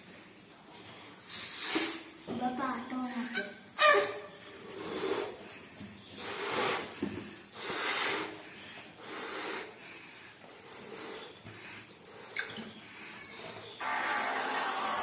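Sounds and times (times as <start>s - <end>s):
puffs of breath into balloon: 1.2s - 2.2s, 4.6s - 12.4s.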